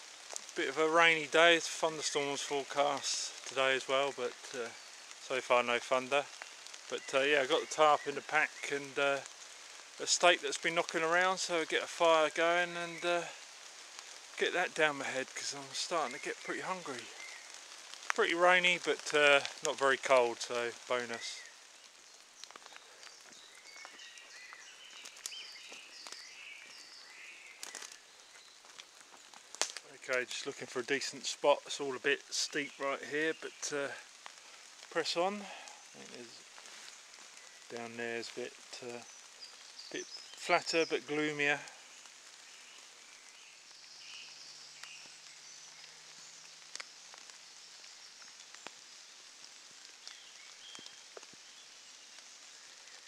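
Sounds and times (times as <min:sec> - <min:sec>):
drips ticking on leaves: 0:00.0 - 0:53.0
light rain: 0:00.0 - 0:53.0
birds chirping and whistling: 0:22.4 - 0:28.8.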